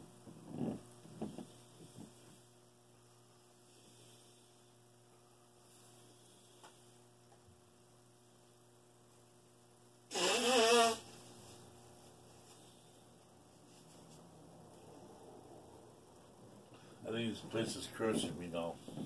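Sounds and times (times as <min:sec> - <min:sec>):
electrical mains hum: 0:00.0 - 0:19.0
man blowing nose: 0:10.1 - 0:11.2.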